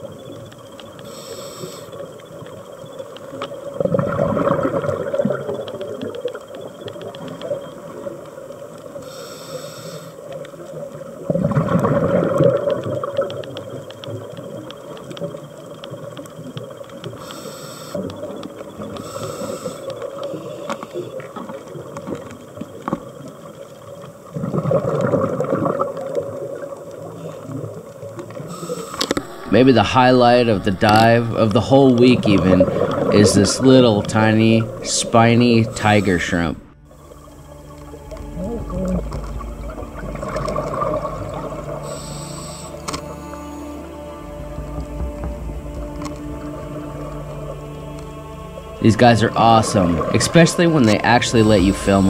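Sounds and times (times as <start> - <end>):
faint clicks: 0.0 - 29.3, 40.2 - 43.4
regulator inhalation hiss: 1.0 - 2.1, 9.0 - 10.3, 17.1 - 18.1, 18.9 - 21.2, 28.4 - 38.3, 39.3 - 50.0
exhaled bubbles rumbling: 1.9 - 9.0, 10.3 - 17.2, 18.0 - 52.0.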